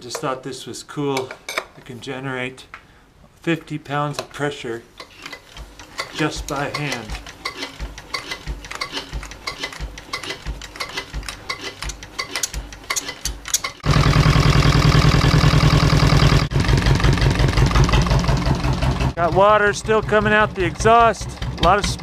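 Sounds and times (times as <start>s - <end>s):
engine cranking thumps and clicks: 5.0s - 22.0s
marine diesel engine running: 13.8s - 22.0s.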